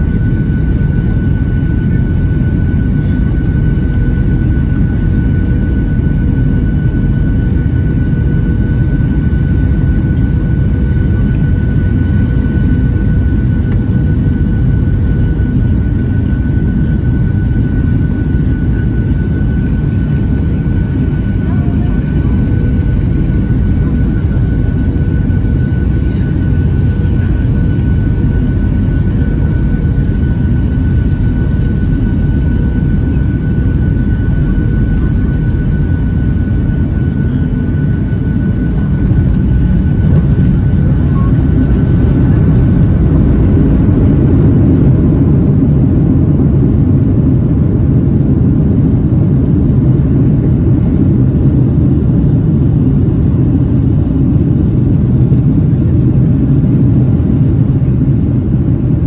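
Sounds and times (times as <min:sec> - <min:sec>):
faint high whine: 0:00.0 - 0:45.9
jet engines rumbling: 0:00.0 - 0:59.0.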